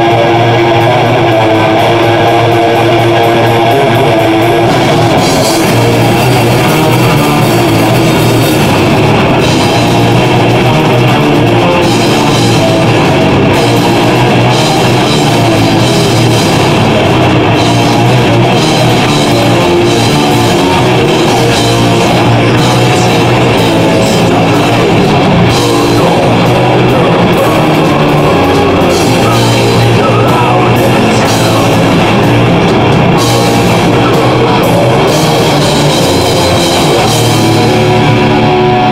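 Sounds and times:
bass guitar: 0.0 - 38.9
drum kit with cymbals: 0.0 - 38.9
electric guitars: 0.0 - 38.9.

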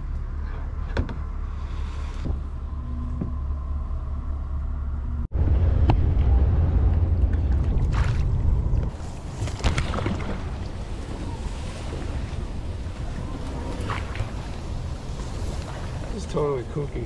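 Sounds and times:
wind buffeting microphone: 5.3 - 17.0
choppy water: 6.3 - 17.0.

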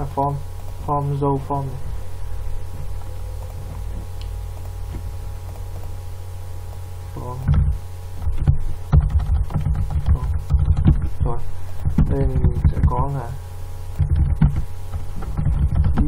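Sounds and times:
low electrical hum: 0.0 - 16.0
keyboard typing: 2.8 - 6.0, 7.5 - 13.0, 14.0 - 16.0.

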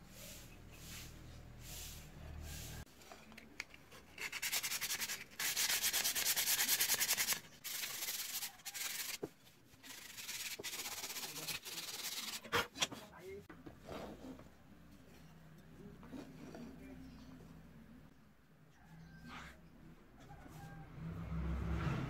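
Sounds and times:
sandpaper scratching wood: 4.2 - 9.2, 9.8 - 12.5.

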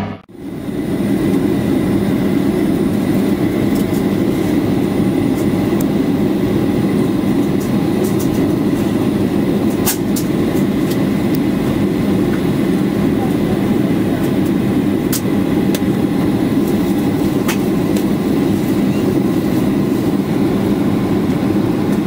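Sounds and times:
airplane cabin roar: 0.0 - 22.0.

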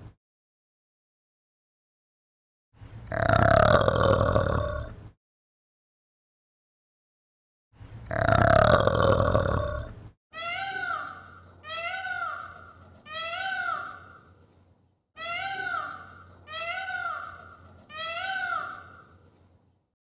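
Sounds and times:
peacock calling: 10.4 - 14.3, 15.2 - 19.1.

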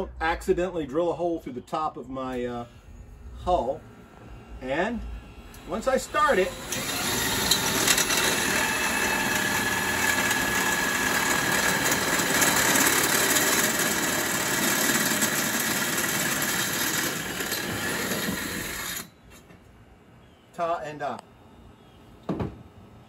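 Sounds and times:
faint steady whine: 0.0 - 8.3
electric drill boring: 5.5 - 19.1.

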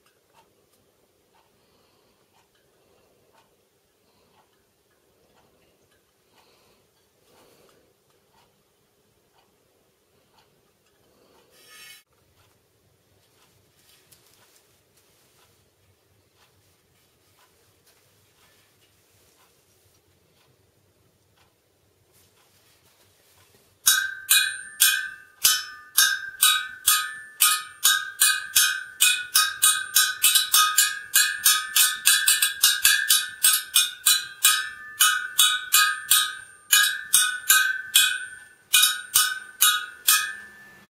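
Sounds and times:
metallic spoke pings: 11.6 - 12.1, 23.8 - 40.9.

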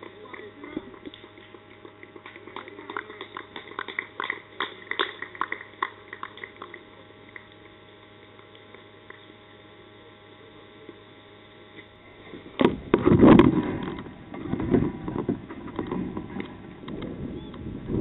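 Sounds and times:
people clapping: 0.0 - 7.7.

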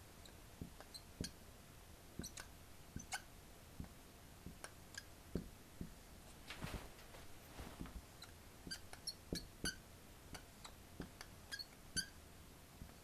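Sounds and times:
marker tapping on glass board: 0.6 - 1.4, 2.2 - 6.0, 8.6 - 12.1
rustle: 6.3 - 8.0.

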